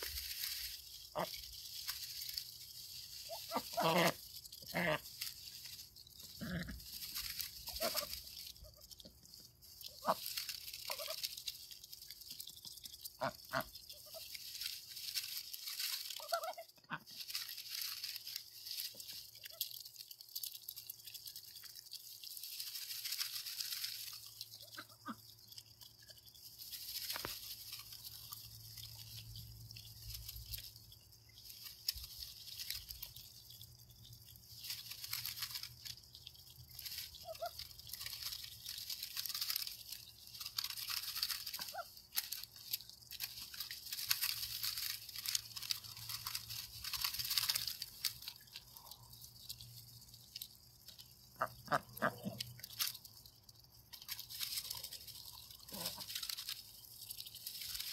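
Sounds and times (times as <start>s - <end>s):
rustling through shredded grass: 0.0s - 57.9s
ducks quacking softly: 3.2s - 5.2s, 51.3s - 52.4s.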